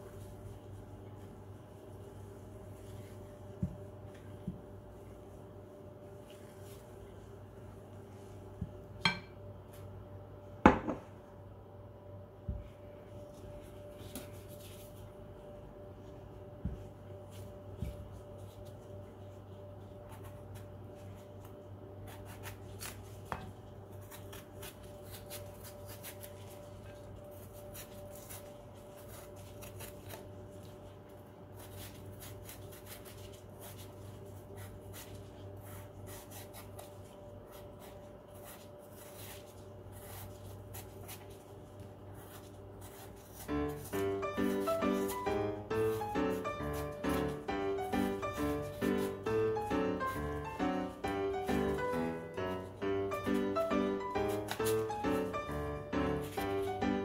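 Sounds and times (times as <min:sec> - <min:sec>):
faint steady hum: 0:00.0 - 0:57.0
knife scraping apple skin: 0:20.0 - 0:57.0.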